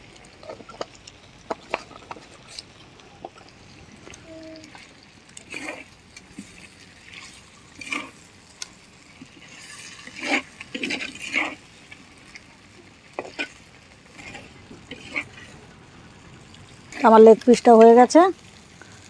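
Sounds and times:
spatula scraping clay pan: 0:09.4 - 0:11.7.

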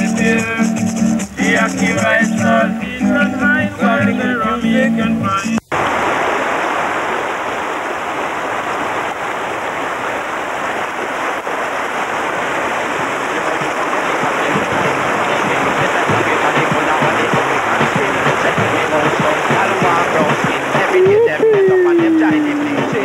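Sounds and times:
river rushing over rapids: 0:05.4 - 0:23.0.

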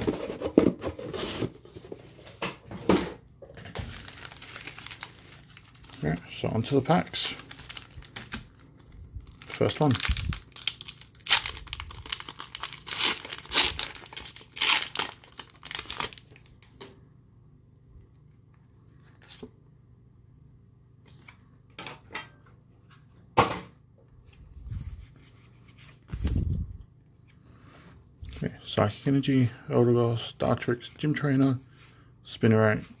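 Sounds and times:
foil wrapper tearing and crinkling: 0:03.9 - 0:08.5, 0:09.2 - 0:16.6.

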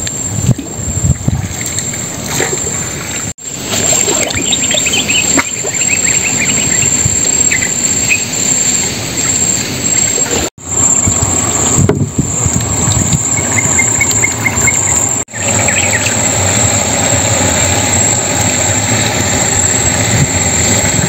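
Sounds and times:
boat motor and water rumble: 0:00.0 - 0:21.0
high-pitched whine: 0:00.0 - 0:21.0
birds chirping: 0:04.0 - 0:11.1, 0:13.1 - 0:21.0.

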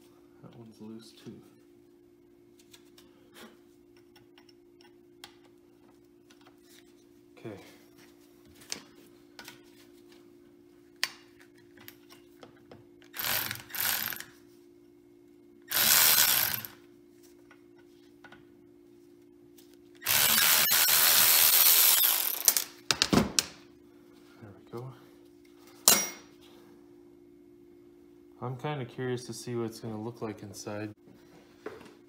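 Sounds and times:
electric ratchet spinning bolts: 0:13.1 - 0:14.3, 0:15.7 - 0:16.8, 0:20.0 - 0:22.8.

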